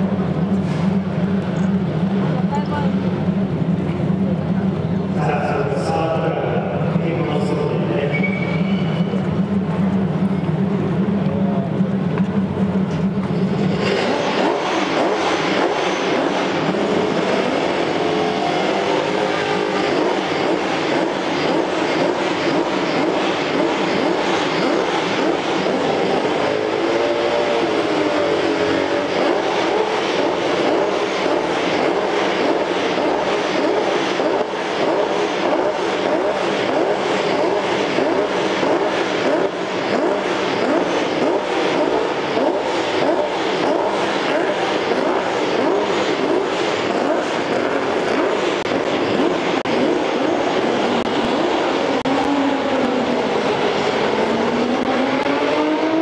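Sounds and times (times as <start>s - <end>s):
starter low hum: 0.0s - 26.5s
racing engine running loudly: 0.0s - 56.0s.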